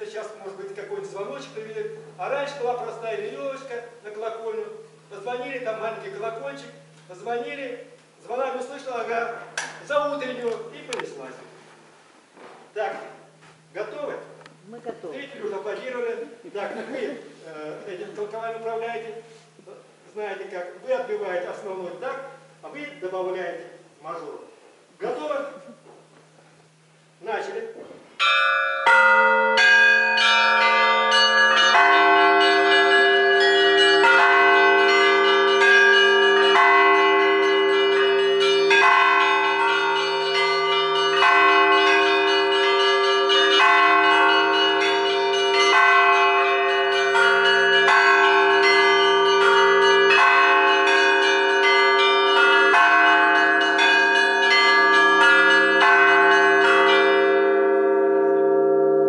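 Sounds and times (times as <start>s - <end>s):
church bells pealing: 0.0s - 11.3s, 28.2s - 59.0s.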